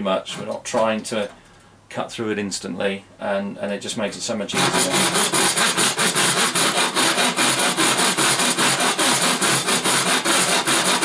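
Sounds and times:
hacksaw rasping through metal: 4.6s - 11.0s.

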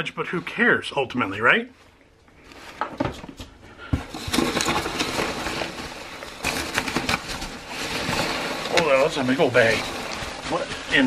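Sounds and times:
bubble wrap crinkling: 4.1s - 11.0s
packing peanuts rustling: 4.1s - 11.0s.

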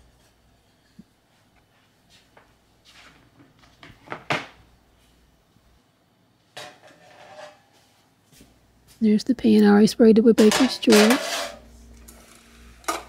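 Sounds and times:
rustling scrape: 6.8s - 8.0s, 10.5s - 12.9s.

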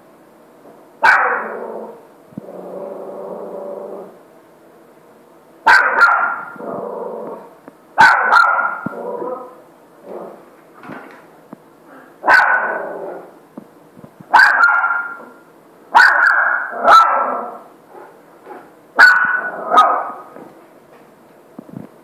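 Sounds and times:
dog barking and grumbling: 1.0s - 4.2s, 5.7s - 10.5s, 11.9s - 13.4s, 14.3s - 20.4s.

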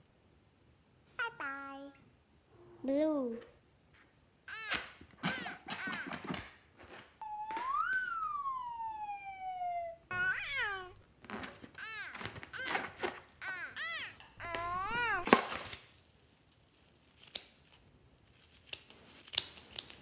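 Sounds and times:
squeaky cartoon voice chattering: 4.5s - 6.1s, 10.1s - 11.0s, 11.8s - 15.3s
long whining call: 7.2s - 11.0s, 13.4s - 15.3s.

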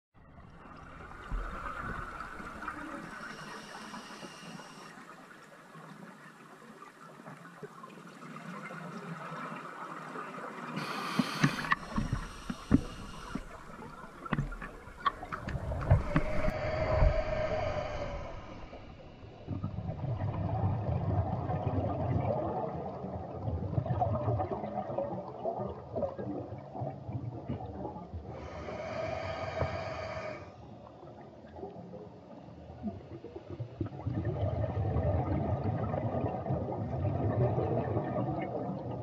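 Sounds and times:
diver breathing through regulator: 1.6s - 5.1s, 10.8s - 19.4s, 28.3s - 30.6s
gurgling exhaled bubbles: 10.6s - 30.4s, 32.8s - 39.0s.

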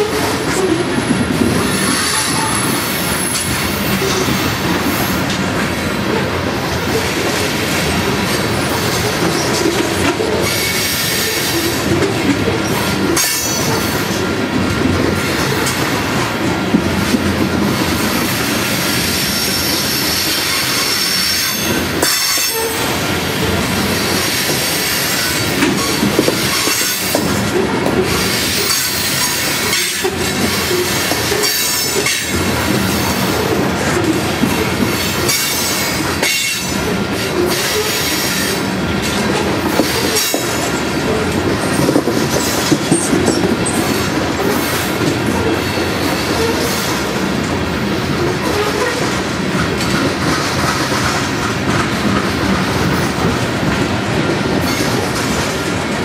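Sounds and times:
train wheel squeal: 0.0s - 5.2s, 8.7s - 14.2s, 18.0s - 27.4s, 28.0s - 32.4s, 35.0s - 38.7s, 39.7s - 40.8s, 41.7s - 47.1s
train wheels rumbling on rails: 0.0s - 56.0s.

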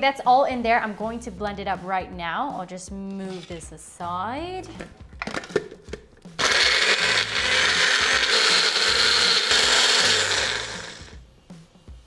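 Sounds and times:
small blender grinding: 6.4s - 11.2s.

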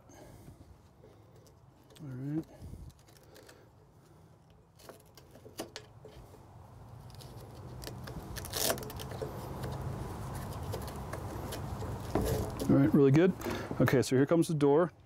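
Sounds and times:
velcro strap clicks and rustles: 1.3s - 3.8s, 6.8s - 12.7s
velcro rasp: 7.0s - 12.7s.

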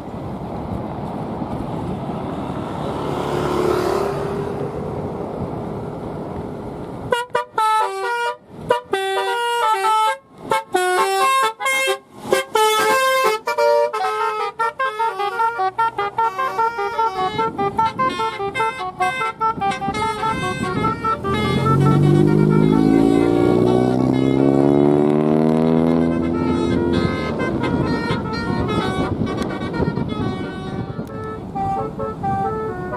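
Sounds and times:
car horn playing melody: 7.1s - 32.9s
car engine revving: 20.0s - 29.2s.

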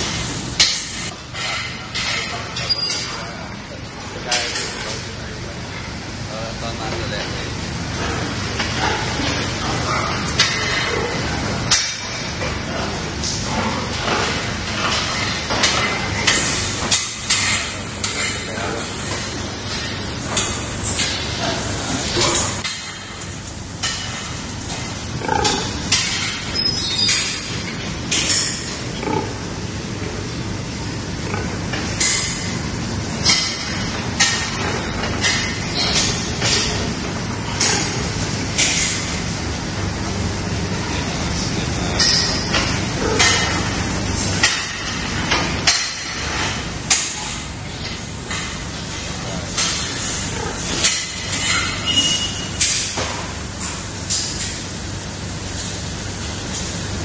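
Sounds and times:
steady hum: 0.0s - 57.0s
ventilation fans droning: 0.0s - 57.0s
metal crates and troughs clinking: 0.1s - 3.4s, 8.0s - 29.3s, 31.4s - 39.2s, 41.8s - 54.7s.

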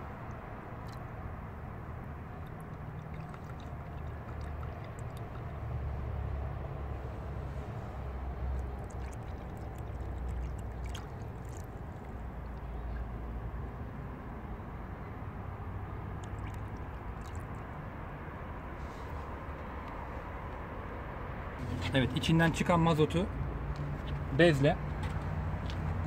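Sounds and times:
fuel dripping and trickling: 0.0s - 13.8s, 14.5s - 20.6s.

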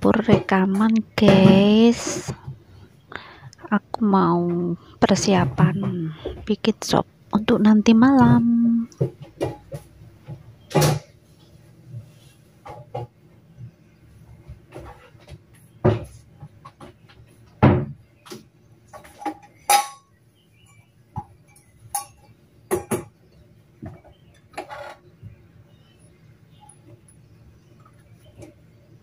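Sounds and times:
dishes and utensils clinking: 19.0s - 20.9s, 21.5s - 23.0s.

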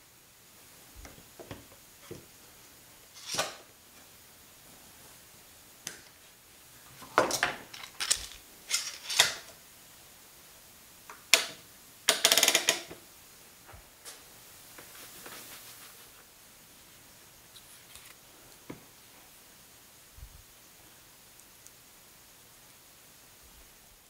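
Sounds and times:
metal clamps clicking and clattering: 7.2s - 9.5s.

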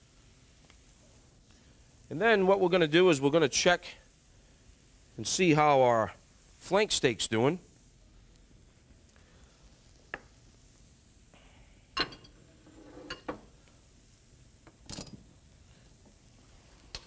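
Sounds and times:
metal kitchen utensils clinking: 12.0s - 13.3s.

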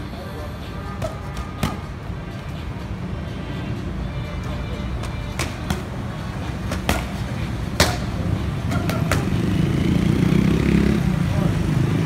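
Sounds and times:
low rumble of street traffic: 0.0s - 12.0s
boxing gloves smacking mitts: 1.0s - 1.9s, 5.0s - 9.4s.

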